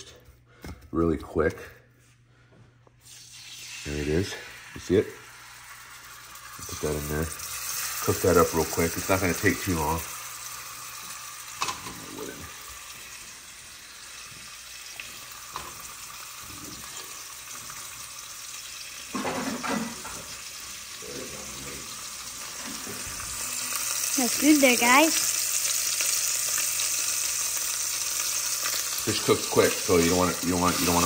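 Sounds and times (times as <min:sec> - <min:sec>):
fish frying in oil: 0:03.1 - 0:31.0.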